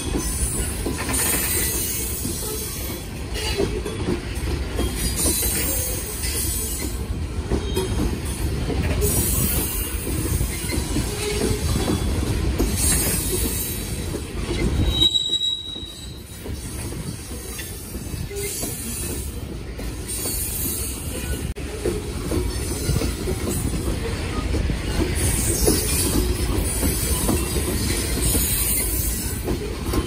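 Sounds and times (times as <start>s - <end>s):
freight train wheels rumbling: 0.0s - 30.0s
high wheel squeal: 14.6s - 17.6s.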